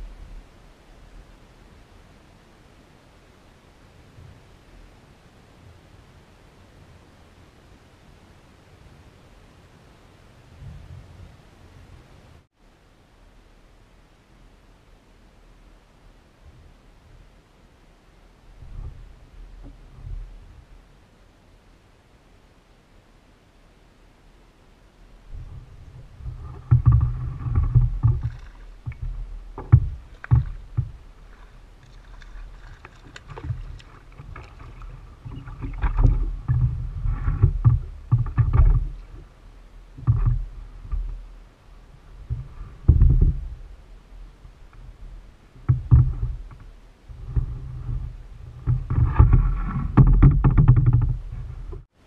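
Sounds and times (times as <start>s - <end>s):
water noise: 0.0s - 52.0s
thumps and knocks on plastic hull: 26.2s - 31.4s, 32.3s - 39.2s, 42.3s - 43.6s, 45.7s - 46.6s, 48.6s - 51.2s.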